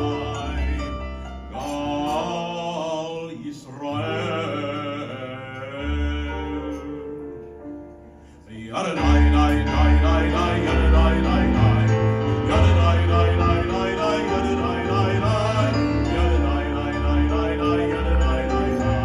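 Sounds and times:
man singing: 0.0 - 7.4, 8.4 - 19.0.

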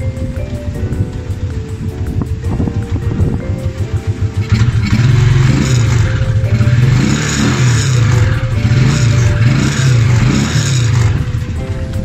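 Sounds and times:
faint background music: 0.0 - 12.0
motorcycle engine revving: 2.3 - 11.7.

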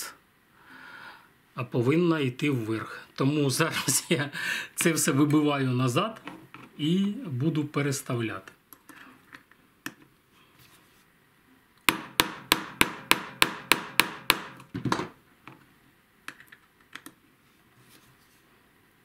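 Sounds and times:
hammer tapping metal punch: 11.9 - 15.1.

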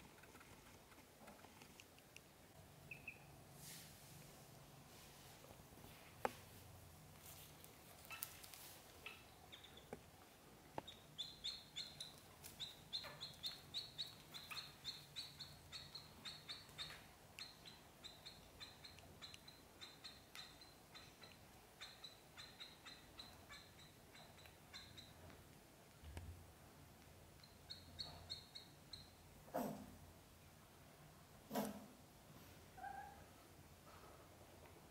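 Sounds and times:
ducklings peeping: 2.9 - 3.3, 9.0 - 9.9, 10.8 - 25.2, 27.4 - 29.2.

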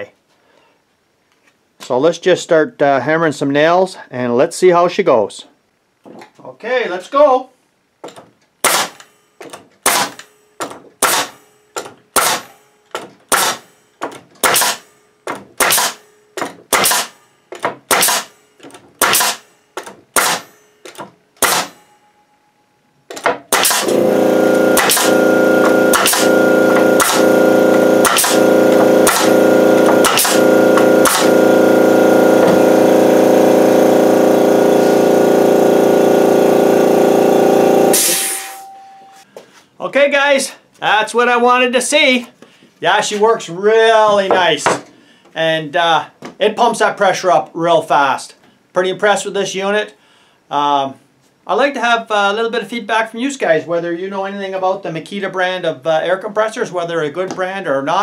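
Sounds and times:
nail gun firing into board: 8.6 - 18.4, 19.0 - 21.8, 23.1 - 31.4, 37.9 - 38.5
air compressor humming: 23.5 - 38.8.

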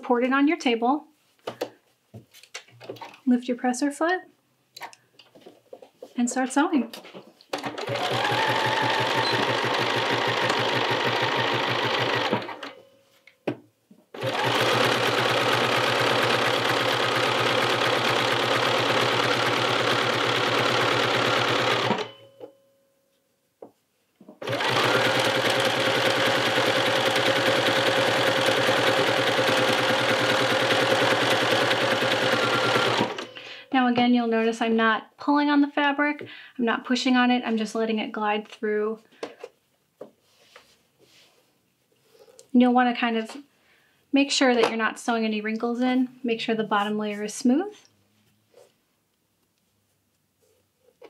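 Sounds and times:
electric sewing machine stitching: 7.6 - 12.8, 14.1 - 22.2, 24.4 - 33.6.

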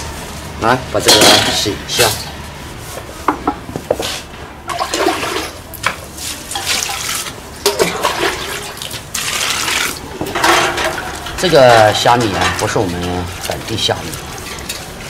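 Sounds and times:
water splashing into metal basin: 4.7 - 15.0
shrimp clinking in colander: 6.5 - 15.0.

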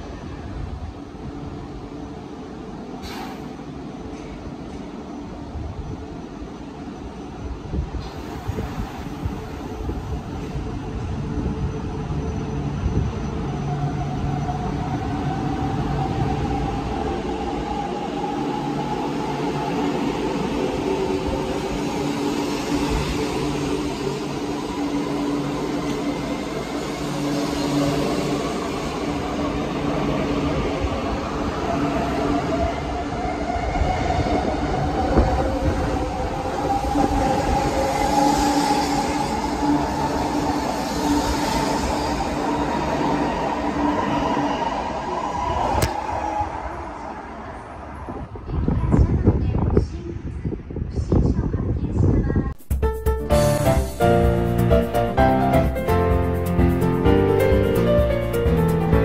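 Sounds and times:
train rolling rumble: 53.3 - 59.0.

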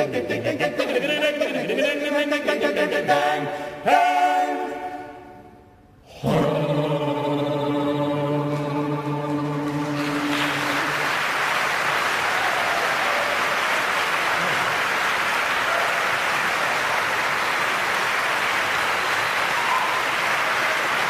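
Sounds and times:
a cappella choir chord: 0.0 - 11.2
audience applauding: 9.3 - 21.0.

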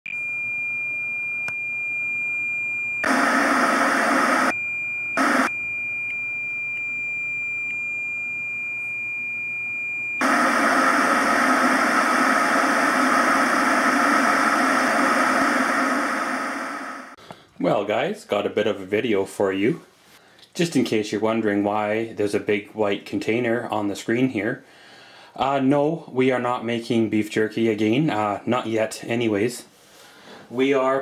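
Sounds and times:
tv static hiss: 3.0 - 4.5, 5.2 - 5.5, 10.2 - 17.2.

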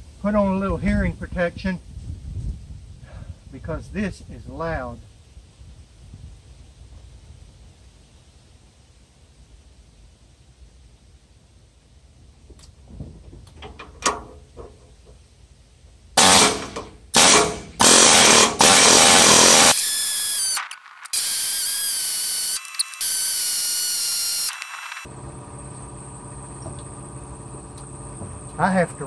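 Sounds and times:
pneumatic air hammer hammering: 16.2 - 24.9.

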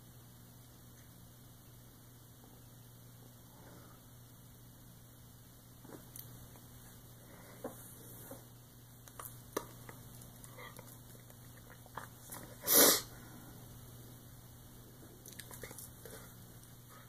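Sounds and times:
person sharp breath: 12.6 - 13.6.

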